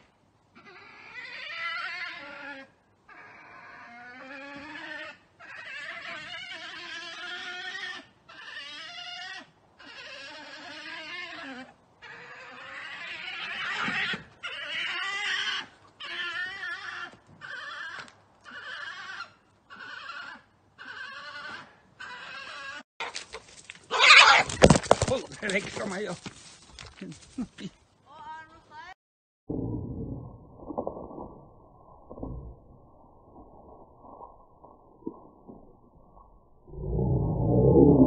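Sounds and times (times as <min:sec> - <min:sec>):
badgers squealing: 0:23.9 - 0:24.8.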